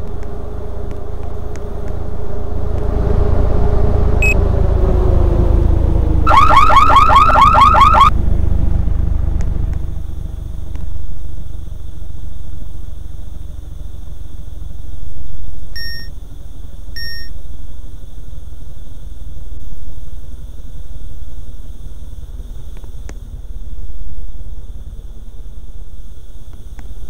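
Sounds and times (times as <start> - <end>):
low rumble: 0.0 - 26.5
electronic alarm rising chirps: 4.2 - 4.4, 6.3 - 8.1, 15.8 - 16.2, 17.0 - 17.4
short electronic beeps: 6.3 - 8.1, 15.8 - 16.2, 17.0 - 17.4.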